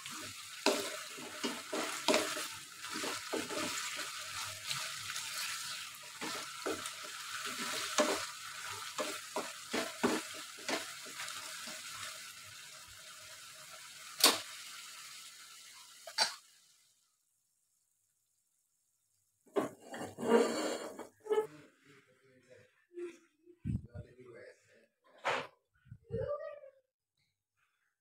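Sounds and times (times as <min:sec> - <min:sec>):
wooden spatula scraping a pan: 0:00.0 - 0:12.0, 0:19.5 - 0:21.6
food sizzling in a wok: 0:00.0 - 0:18.2.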